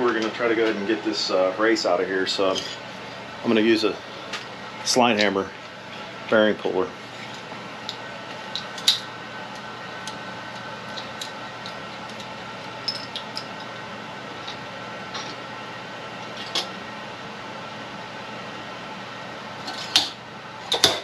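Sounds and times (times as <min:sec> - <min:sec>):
steady shop hum: 0:00.0 - 0:21.0.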